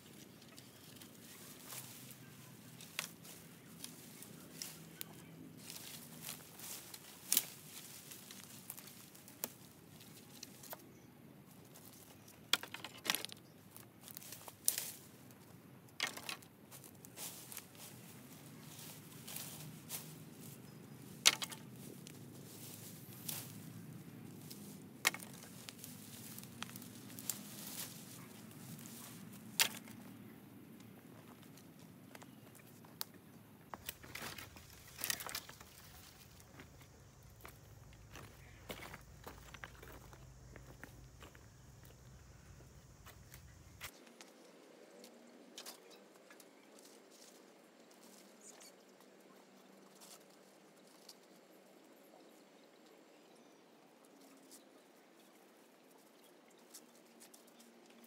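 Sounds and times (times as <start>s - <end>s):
twigs crackling and snapping underfoot: 0.1s - 10.9s, 11.5s - 48.6s
footsteps on stony ground: 33.7s - 44.0s.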